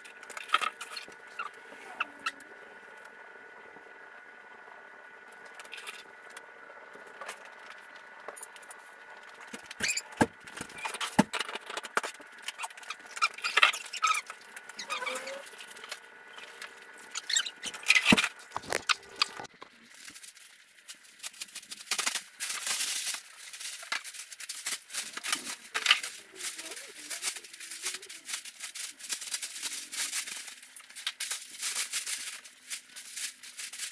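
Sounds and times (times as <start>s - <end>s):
packing paper rustling: 7.0s - 33.9s
plastic trash bag rustling: 12.3s - 33.9s.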